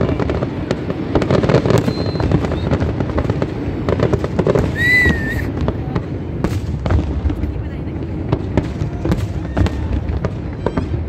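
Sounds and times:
firework whistle: 1.5s - 3.0s, 4.5s - 5.6s, 9.2s - 11.0s.

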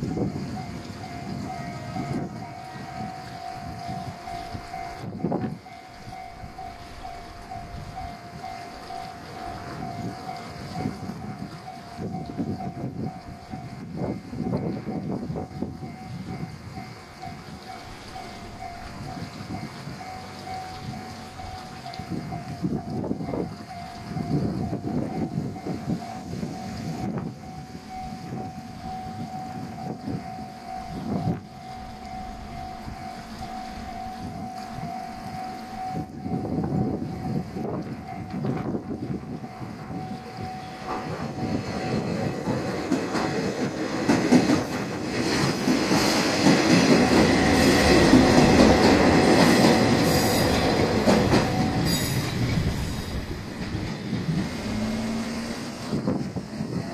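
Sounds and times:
level crossing alarm ringing: 0.0s - 45.0s, 45.7s - 53.7s
diesel engines running: 15.4s - 56.9s
train wheels clacking over rail joints: 37.5s - 56.9s.

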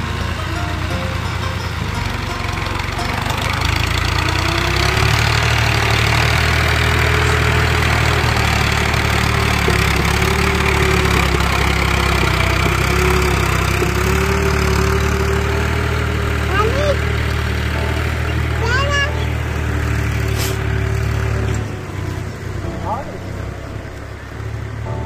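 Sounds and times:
tractor diesel engine droning: 0.0s - 25.0s.

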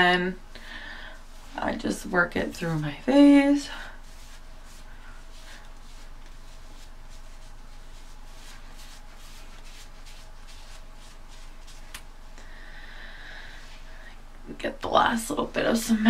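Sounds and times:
soft wiping on face: 1.0s - 12.4s, 13.4s - 14.1s.

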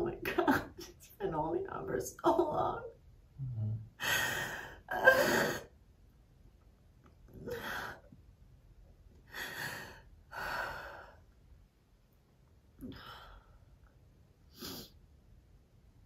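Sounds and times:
woman gasping and crying: 4.0s - 5.7s.

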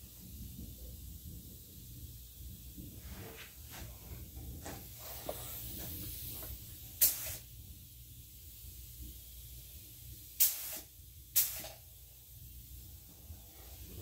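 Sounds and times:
spray gun hissing: 3.0s - 14.0s.

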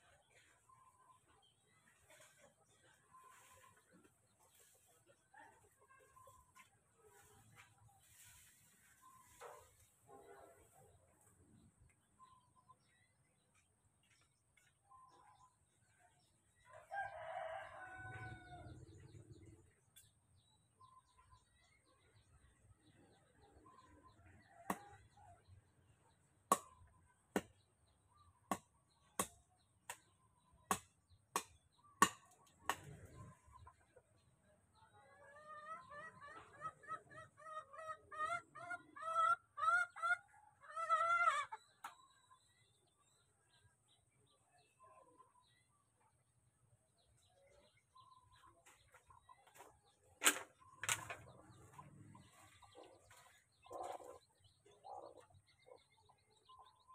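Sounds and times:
chicken clucking: 0.0s - 12.4s, 32.8s - 42.4s, 47.1s - 56.9s.

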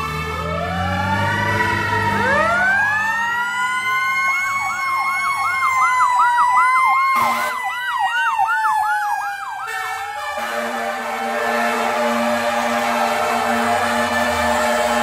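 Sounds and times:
mechanical siren wailing: 0.0s - 15.0s
electronic siren yelping: 0.6s - 11.2s.

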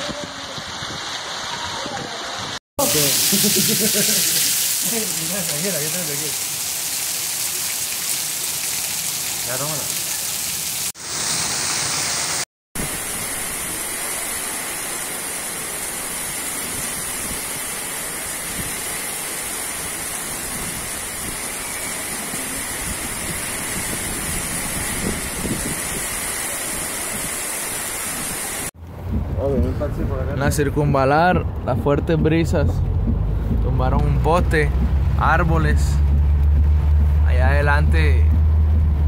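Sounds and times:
heavy rain in strong wind: 0.0s - 29.4s.

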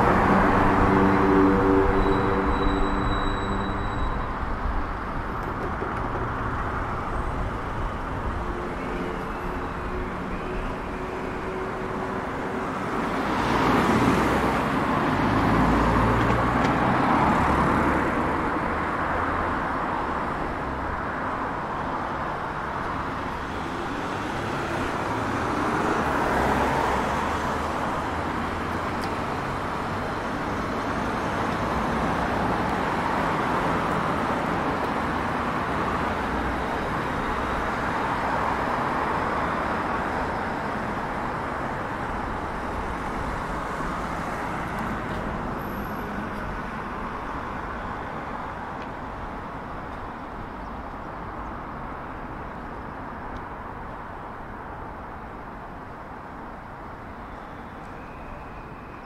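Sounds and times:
cars driving past: 0.0s - 10.3s.

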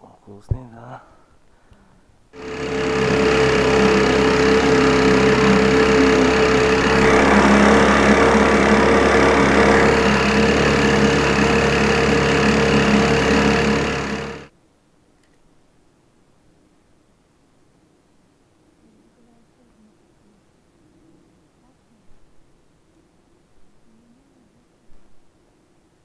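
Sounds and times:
two-stroke outboard motor running: 2.4s - 14.5s.

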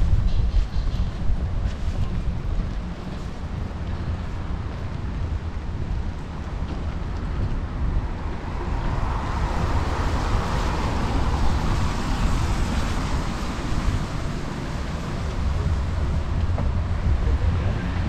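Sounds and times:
wind rumble on microphone: 0.0s - 18.0s
car tyres hissing on wet street: 8.4s - 17.2s.

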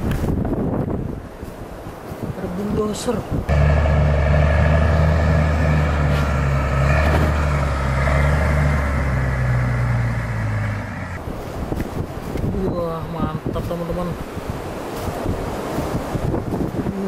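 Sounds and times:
bulldozer diesel engine running: 3.5s - 11.2s.

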